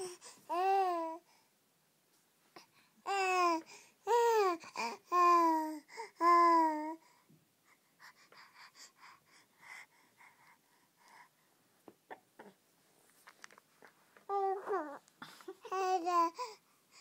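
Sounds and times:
baby babbling: 0.0 - 1.2, 3.1 - 7.0, 12.1 - 12.6, 14.3 - 16.6.

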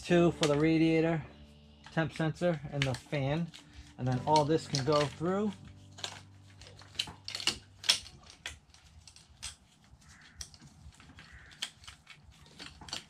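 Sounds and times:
plastic clicks and wire rustling: 1.8 - 13.0.

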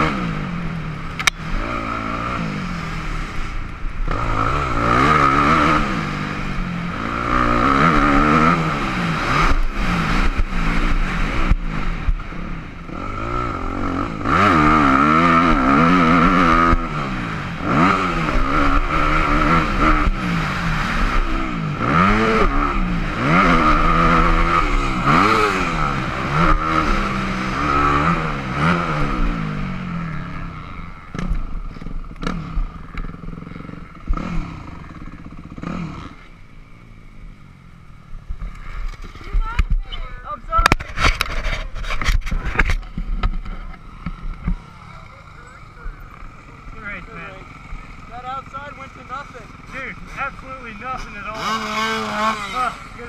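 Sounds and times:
motocross bike engine revving: 0.0 - 53.0
knocks and clatter: 40.6 - 44.6.

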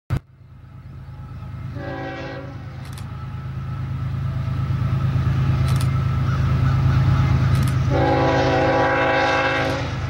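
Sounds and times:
diesel locomotive engine rumble: 0.1 - 10.0
locomotive air horn blast: 1.7 - 2.8, 7.9 - 10.0.

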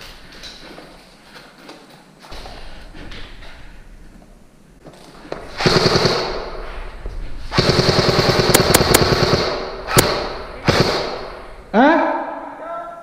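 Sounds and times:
airsoft rifle firing bursts: 5.5 - 6.5, 7.5 - 11.4.

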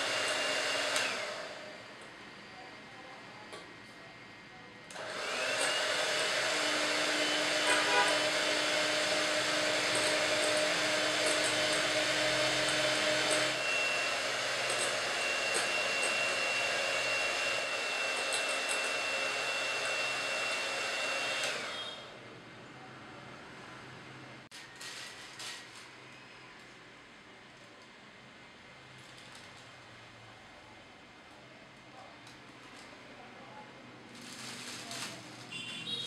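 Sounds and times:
electric hand mixer whining: 0.0 - 1.8, 5.0 - 22.1.

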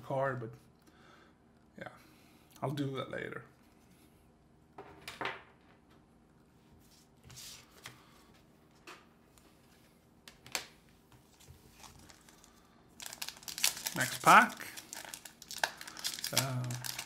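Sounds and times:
trading cards rustling and ticking: 11.3 - 17.0.

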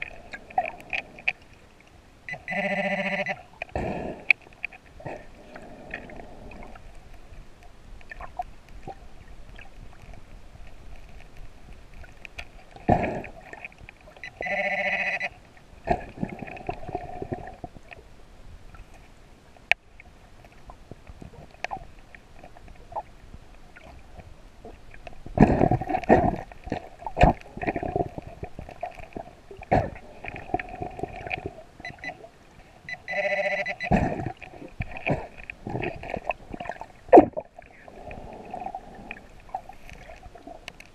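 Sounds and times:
metal detector beeping: 2.3 - 3.4, 14.2 - 15.4, 31.8 - 32.2, 32.9 - 34.0
scuba exhale bubbles: 12.8 - 13.7, 15.9 - 17.8, 25.3 - 31.7, 33.8 - 40.6.

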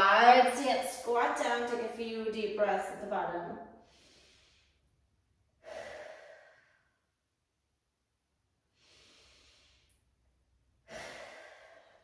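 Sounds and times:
woman breathing deeply: 3.7 - 7.2, 8.6 - 12.0.

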